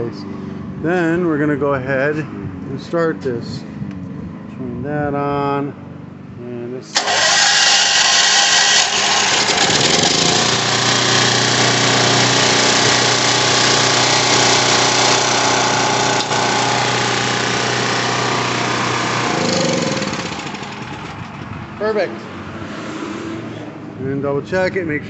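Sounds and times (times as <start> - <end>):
generator engine running: 6.9 - 22.4.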